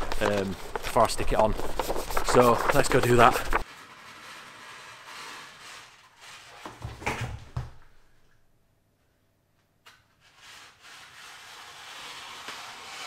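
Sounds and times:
plastic sheet rustling: 0:00.0 - 0:06.6.

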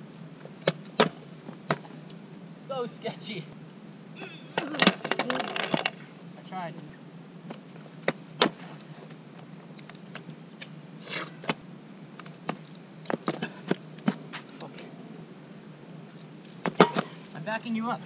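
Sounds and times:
scooters rolling over asphalt: 0:04.2 - 0:15.3, 0:16.0 - 0:18.0
scooter decks clacking on ground: 0:04.6 - 0:06.0, 0:16.5 - 0:17.2.

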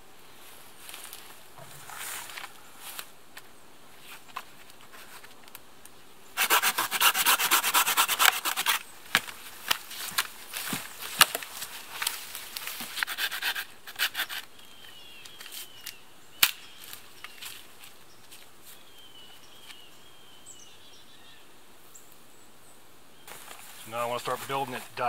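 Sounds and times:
hand saw cutting log: 0:06.4 - 0:08.8, 0:12.9 - 0:14.5.

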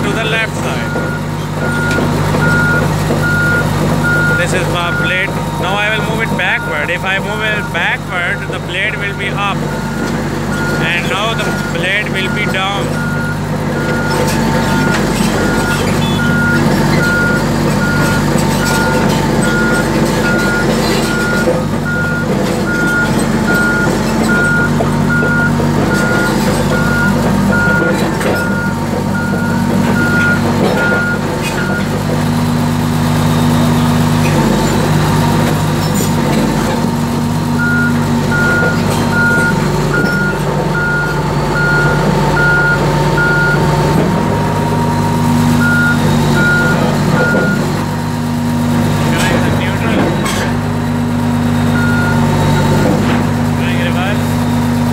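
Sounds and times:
back-up alarm beeping: 0:00.0 - 0:32.0, 0:37.5 - 0:44.0, 0:44.6 - 0:47.8, 0:51.6 - 0:52.9
diesel engine running: 0:00.0 - 0:54.9.

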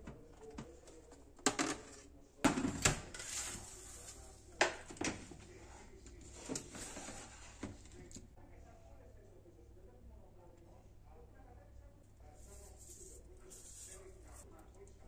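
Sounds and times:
kitchenware clinking and knocking: 0:01.4 - 0:03.2.

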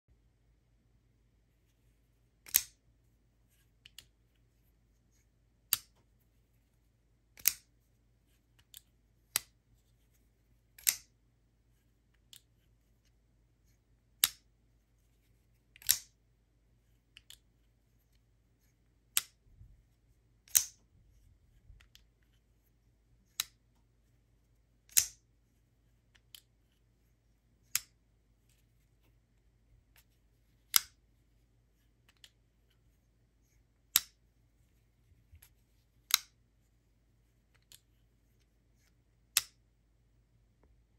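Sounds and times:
folding knife snapping open and shut: 0:02.4 - 0:02.8, 0:07.4 - 0:07.7, 0:10.8 - 0:11.1, 0:15.8 - 0:16.1, 0:20.5 - 0:20.8, 0:24.9 - 0:25.2.

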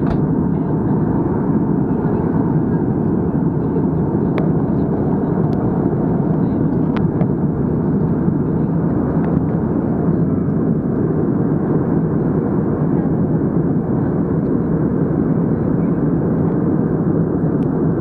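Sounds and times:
airliner cabin engine rush: 0:00.0 - 0:18.0.

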